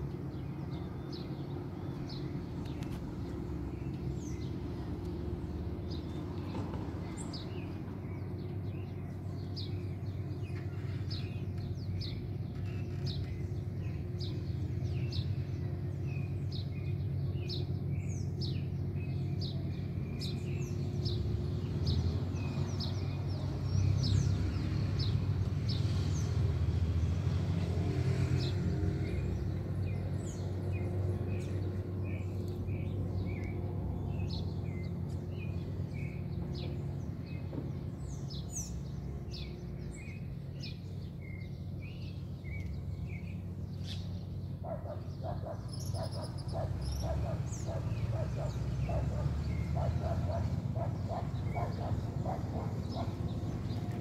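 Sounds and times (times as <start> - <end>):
birds chirping: 0.0 - 26.3, 28.4 - 54.0
distant traffic rumble: 0.0 - 54.0
dog barking: 44.7 - 53.2.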